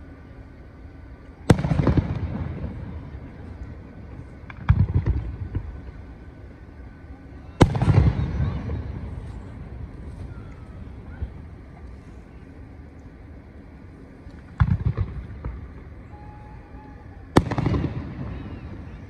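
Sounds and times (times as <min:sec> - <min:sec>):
fireworks bangs: 0:01.4 - 0:12.0, 0:14.3 - 0:19.0.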